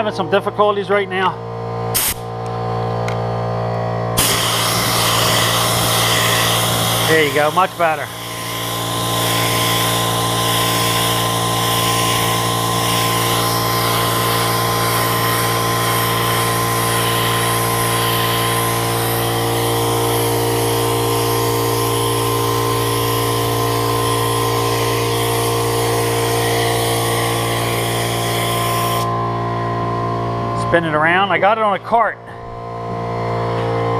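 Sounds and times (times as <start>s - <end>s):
air compressor humming: 0.0s - 31.2s
spray gun hissing: 2.0s - 2.2s, 4.2s - 29.1s.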